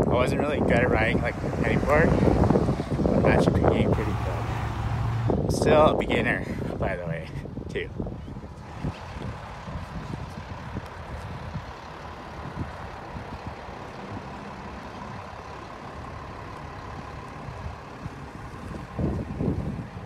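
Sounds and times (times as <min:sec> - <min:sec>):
skateboard wheels rolling on pavement: 0:08.5 - 0:20.0.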